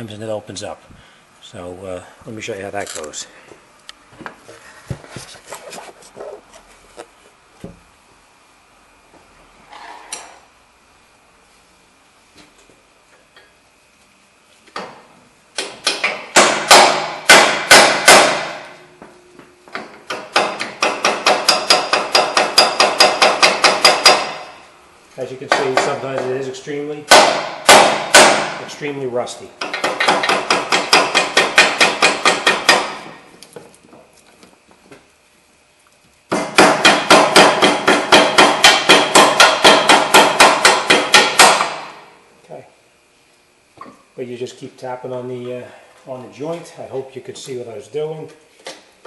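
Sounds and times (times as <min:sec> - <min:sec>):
hammer striking steel: 0:15.6 - 0:18.7, 0:20.1 - 0:24.5, 0:27.1 - 0:28.6
hammer striking steel chisel: 0:20.1 - 0:24.5, 0:29.6 - 0:33.1, 0:36.3 - 0:41.9.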